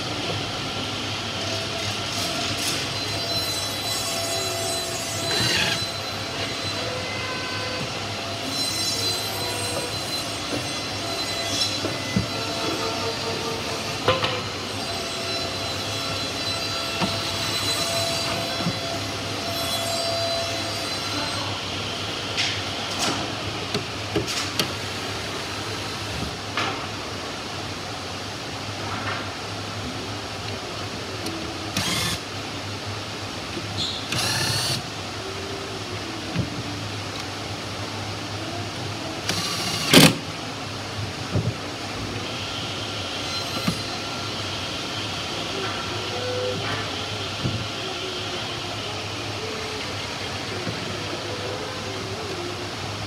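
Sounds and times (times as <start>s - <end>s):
low workshop hum: 0.0s - 53.0s
drill whirring into wood: 2.6s - 6.8s, 31.7s - 32.2s, 34.1s - 34.9s, 39.2s - 40.2s.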